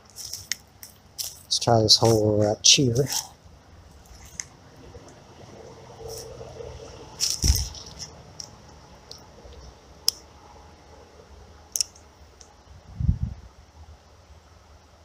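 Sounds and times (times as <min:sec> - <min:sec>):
fishing tackle rustling: 0:00.0 - 0:04.6, 0:07.2 - 0:08.6.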